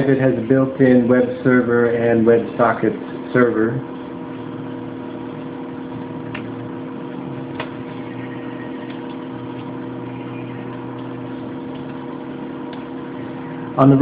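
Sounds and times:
steady electrical hum: 0:00.0 - 0:14.0.

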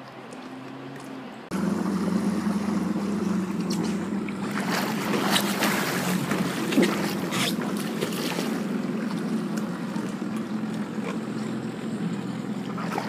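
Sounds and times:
jet ski engine humming: 0:00.0 - 0:13.0
water splashing: 0:00.0 - 0:13.0.

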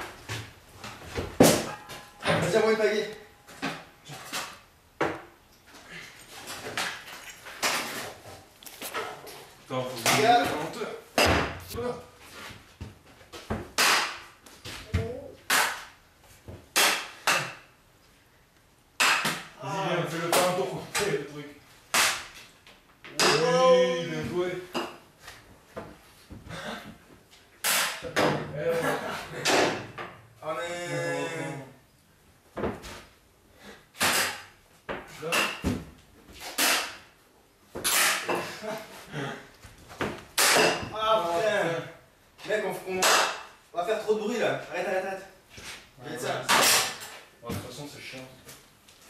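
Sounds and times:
wooden paddle and shovel whacks: 0:13.7 - 0:16.0, 0:16.7 - 0:17.6, 0:19.0 - 0:19.5, 0:21.9 - 0:22.4, 0:34.0 - 0:37.0, 0:40.0 - 0:40.9.

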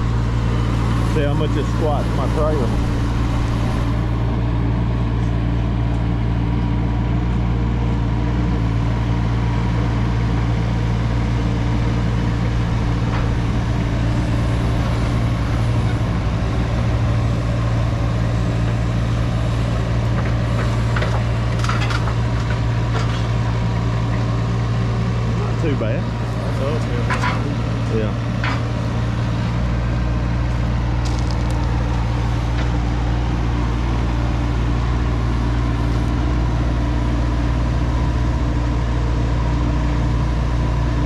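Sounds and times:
diesel engine running: 0:00.0 - 0:41.0.

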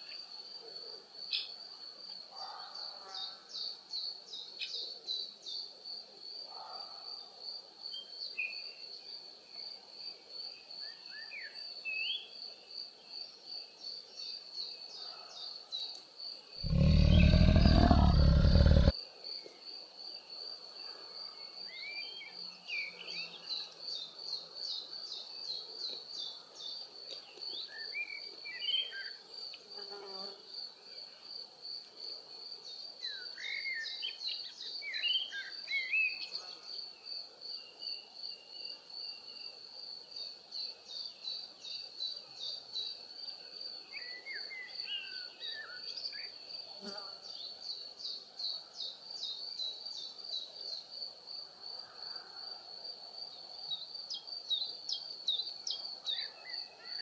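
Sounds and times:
insect pulsing high trill: 0:16.6 - 0:18.9
loud deep animal call: 0:16.6 - 0:18.9.

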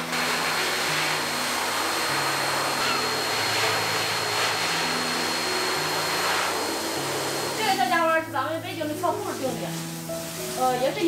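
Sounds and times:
motor whine: 0:00.0 - 0:08.3
grooming dryer blowing air: 0:00.0 - 0:11.0.

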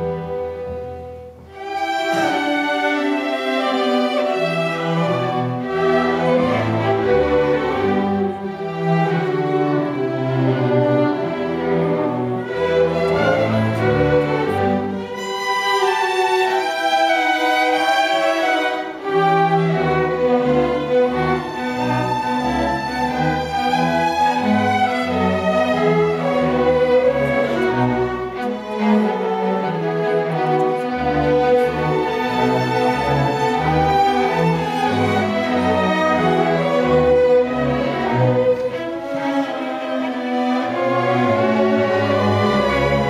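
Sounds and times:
cellos playing: 0:00.0 - 0:43.0
violins playing: 0:00.0 - 0:43.0.

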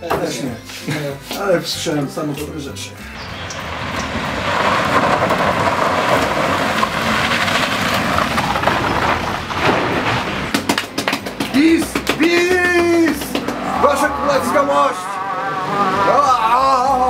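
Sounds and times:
tyres rushing on loose gravel: 0:03.2 - 0:14.8.

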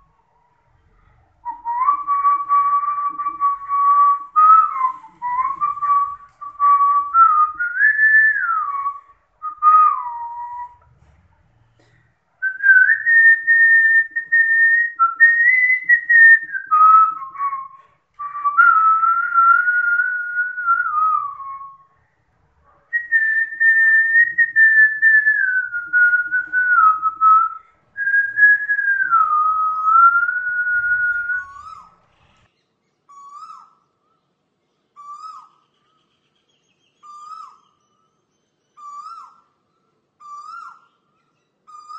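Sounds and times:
person whistling a slow tune: 0:01.4 - 0:10.9, 0:12.4 - 0:21.9, 0:23.0 - 0:31.9.

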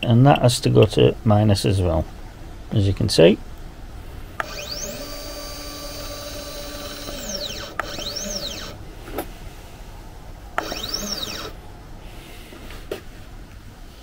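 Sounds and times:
stepper motors whining: 0:04.3 - 0:09.2, 0:10.2 - 0:11.8.

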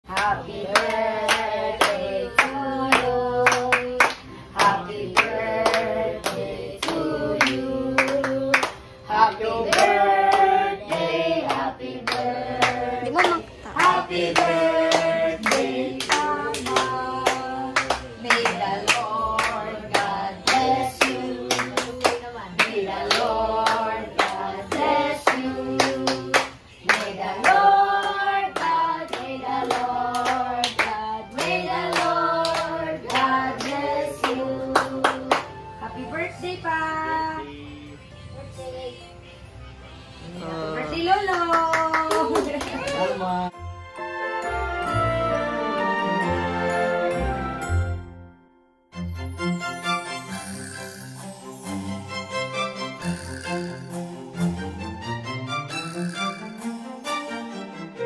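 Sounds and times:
group singing a birthday song: 0:00.0 - 0:38.2
people clapping in time: 0:00.1 - 0:08.8, 0:09.7 - 0:35.6, 0:41.3 - 0:43.2.

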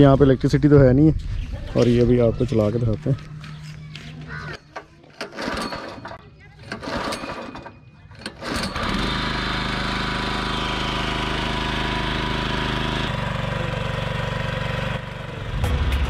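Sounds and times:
engine pull-start: 0:05.1 - 0:10.0
small petrol engine running: 0:05.1 - 0:16.0.

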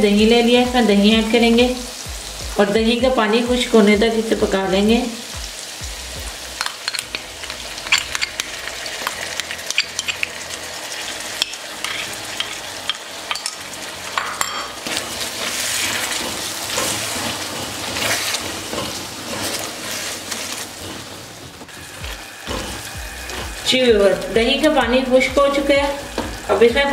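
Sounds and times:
food sizzling in hot oil: 0:00.0 - 0:26.9
spatula scraping a pan: 0:06.8 - 0:13.6, 0:14.3 - 0:23.7.

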